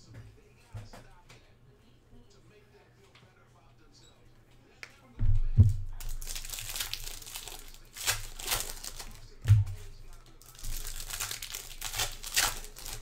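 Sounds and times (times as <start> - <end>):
dull thumps on table: 5.2 - 6.0
foil wrappers crinkling and tearing: 5.9 - 13.0.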